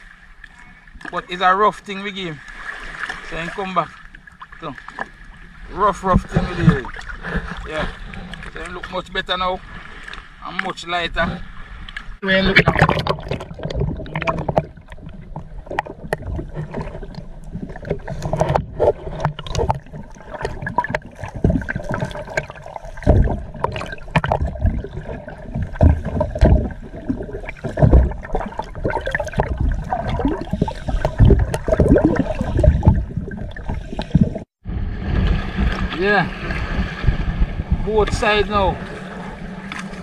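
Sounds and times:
water splashing against boat hull: 0.0 - 40.0.

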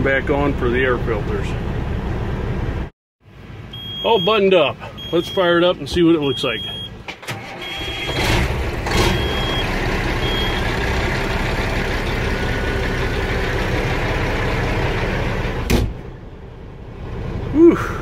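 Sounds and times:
diesel engine starting and idling: 0.1 - 18.0
high warning beep: 3.7 - 7.0, 7.6 - 8.3, 9.1 - 10.7.

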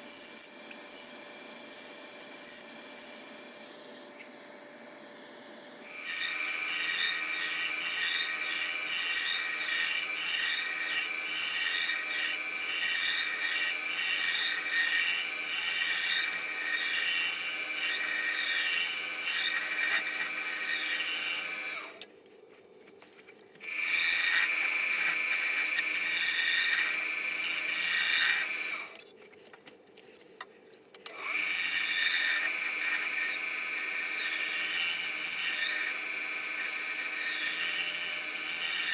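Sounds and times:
lathe tool scraping wood: 5.9 - 22.0, 23.6 - 28.8, 31.1 - 38.9.

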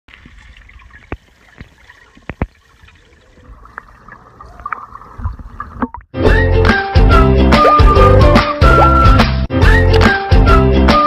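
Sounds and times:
water sloshing: 0.1 - 6.2.

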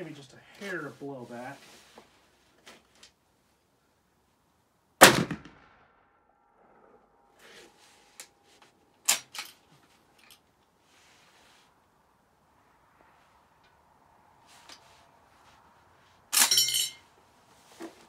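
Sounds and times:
rifle shot with ringing tail: 5.0 - 5.9.

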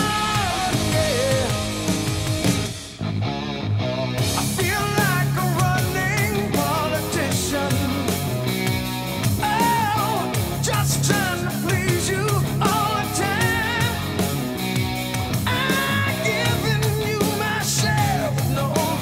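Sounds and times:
person singing: 0.0 - 2.0, 4.4 - 8.4, 9.4 - 14.4, 15.4 - 19.0
bass line: 0.0 - 19.0
guitar: 0.0 - 19.0.

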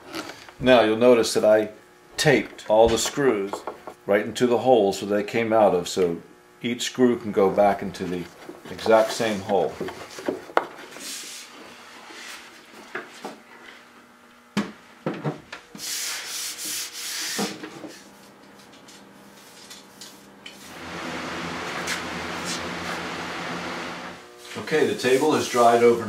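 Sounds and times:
wooden table knocks: 2.9 - 4.0
hand sanding wood: 7.9 - 12.5, 15.8 - 18.1, 24.4 - 26.0
cloth rubbing on wood: 8.0 - 12.4.

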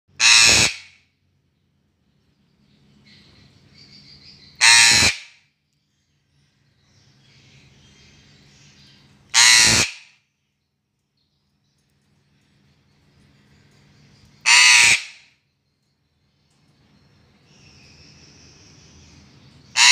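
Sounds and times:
parrot calls: 0.2 - 0.9, 4.6 - 5.3, 9.3 - 10.1, 14.4 - 15.3.

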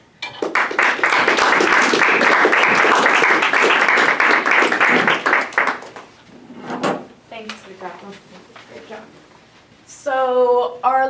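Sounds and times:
audience applauding: 0.3 - 6.2.

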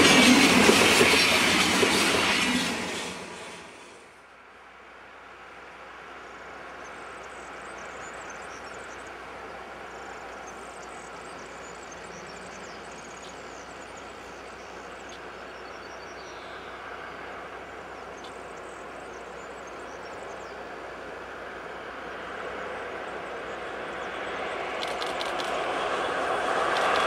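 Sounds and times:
electric train running: 0.0 - 4.0, 19.0 - 27.0
sharp clicks: 24.8 - 25.6, 26.7 - 27.0.

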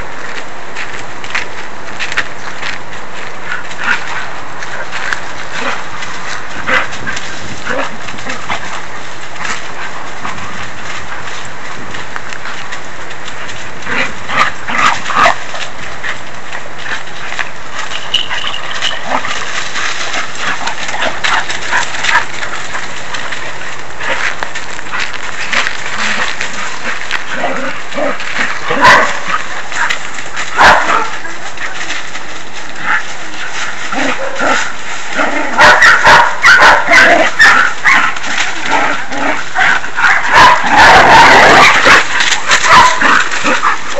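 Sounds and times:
dogs barking and yipping: 0.0 - 43.9
loud dog barks: 26.0 - 31.4, 34.0 - 38.7, 39.3 - 43.9.

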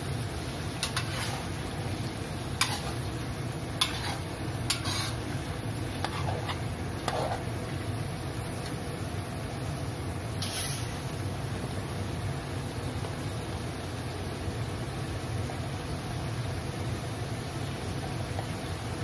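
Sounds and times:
prawns frying in oil: 0.0 - 19.0
steady low hum: 0.0 - 19.0
metal spatula scraping wok: 0.8 - 1.6, 2.6 - 7.5, 10.4 - 11.0.

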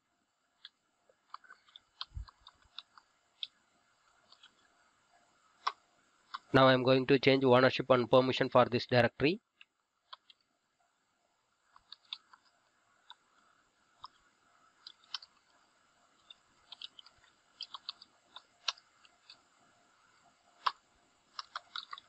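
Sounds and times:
computer keyboard keystrokes: 16.7 - 19.4, 20.6 - 22.0.

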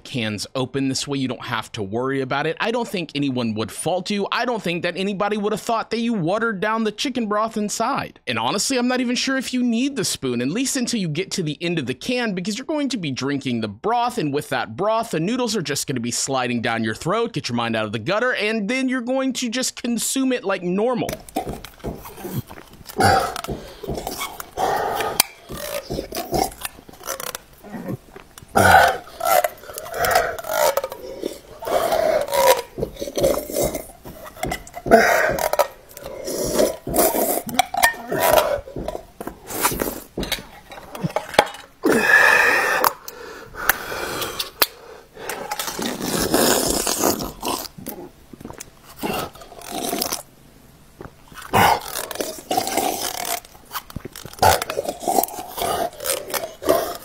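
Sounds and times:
metal spoon scraping in a can: 21.1 - 41.8, 45.3 - 47.7
loud swallowing: 21.1 - 50.2, 51.3 - 57.0
man gulping and slurping soup: 21.1 - 57.0
heavy breathing: 21.2 - 48.1.

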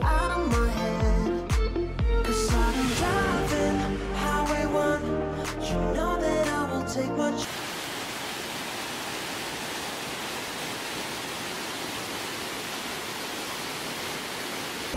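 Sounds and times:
waterfall rushing: 7.4 - 14.9.

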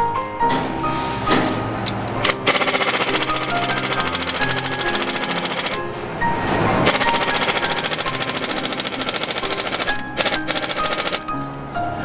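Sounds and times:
pneumatic air tool rattling: 2.2 - 5.8, 6.8 - 11.3.

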